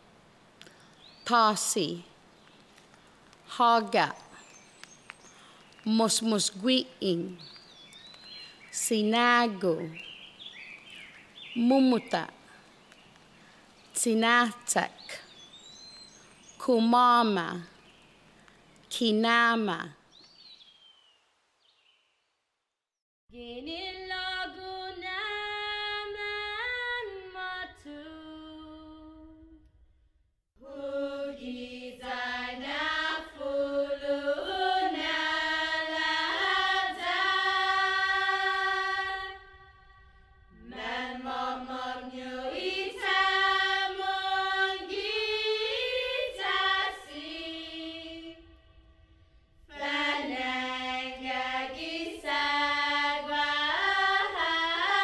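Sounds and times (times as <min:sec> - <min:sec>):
choir singing: 0:30.6 - 0:48.8, 0:49.7 - 0:55.0.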